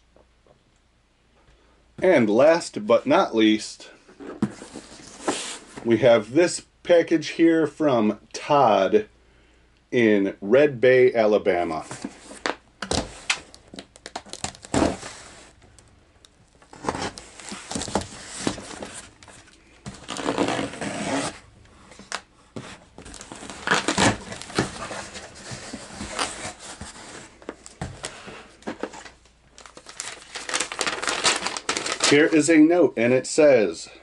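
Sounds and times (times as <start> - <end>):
cardboard and contents rustling: 4.1 - 5.9, 11.8 - 32.3
packing tape ripping: 12.8 - 15.3, 19.9 - 21.4, 23.1 - 25.1, 29.6 - 32.4.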